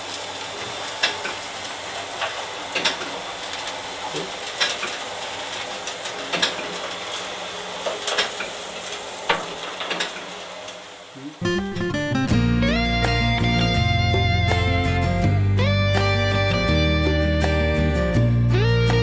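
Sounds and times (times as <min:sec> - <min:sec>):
wood chips clanking in metal chute: 0:00.0 - 0:11.1
auger feeder rushing hiss: 0:00.0 - 0:11.5.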